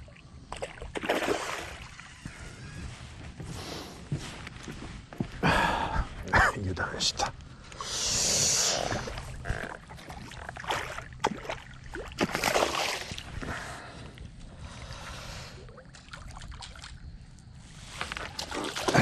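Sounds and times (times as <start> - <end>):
water sloshing: 0.0 - 2.5, 8.7 - 14.9, 15.6 - 19.0
fish splashing in water: 0.5 - 2.1, 8.9 - 13.3.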